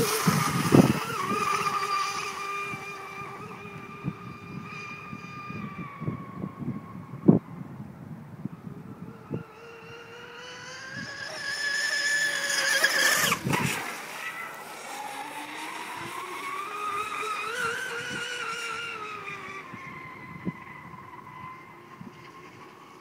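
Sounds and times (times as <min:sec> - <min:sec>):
water rushing: 0:00.0 - 0:05.4, 0:10.1 - 0:22.9
electric boat motor whining: 0:00.0 - 0:23.0.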